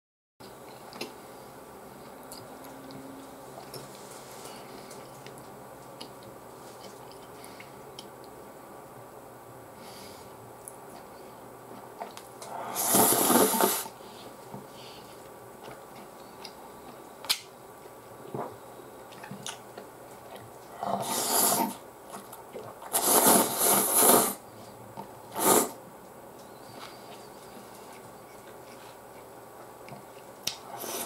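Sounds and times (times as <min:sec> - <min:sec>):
person slurping noodles: 0:12.6 - 0:13.9, 0:20.9 - 0:21.8, 0:22.9 - 0:24.4, 0:25.3 - 0:25.8, 0:30.7 - 0:31.0.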